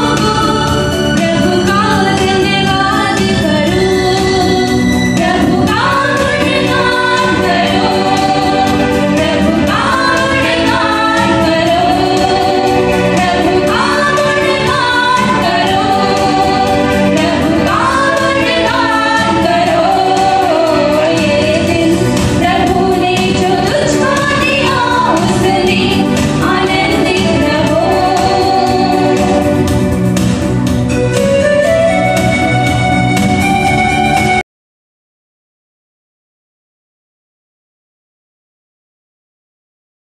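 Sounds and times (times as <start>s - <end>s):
women singing into microphones: 0.0s - 29.7s
electronic keyboard: 0.0s - 34.4s.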